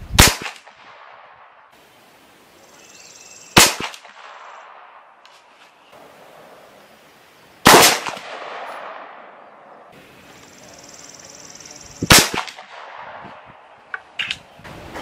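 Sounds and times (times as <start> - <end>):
sharp gunshot with echo: 0.2 - 1.2, 3.6 - 4.7, 7.6 - 9.3, 12.0 - 13.4
air rifle firing: 0.2 - 1.4, 3.6 - 4.8, 7.6 - 9.3, 12.0 - 13.4.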